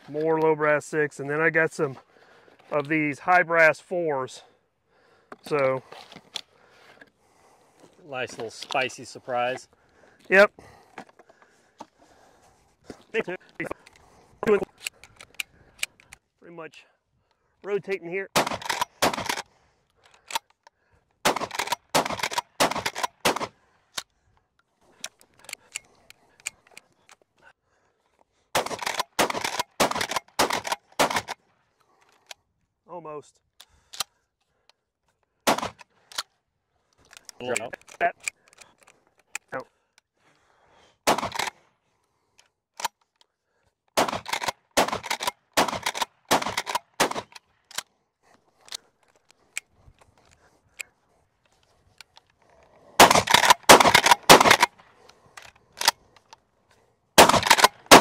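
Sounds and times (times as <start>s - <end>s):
shells clicking into magazine: 13.7s - 16.2s, 18.4s - 20.7s, 21.3s - 24.1s, 25.0s - 27.2s, 28.6s - 32.4s, 37.0s - 39.5s, 43.9s - 47.9s, 51.5s - 56.4s, 57.2s - 58.0s
shotgun blasts with echo: 18.3s - 19.4s, 21.2s - 23.5s, 28.6s - 31.3s, 35.5s - 35.8s, 41.0s - 41.5s, 44.0s - 47.3s, 53.0s - 54.7s, 57.2s - 58.0s
shotgun slide racking: 53.0s - 54.7s.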